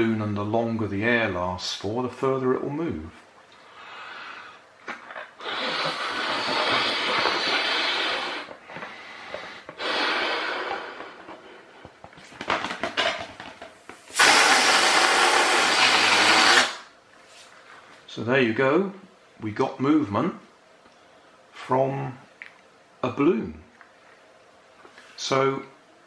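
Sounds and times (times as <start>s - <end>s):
air hissing out of balloon: 3.7s - 12.0s, 13.9s - 17.0s
balloon being blown up by mouth: 4.9s - 12.0s, 14.0s - 16.9s.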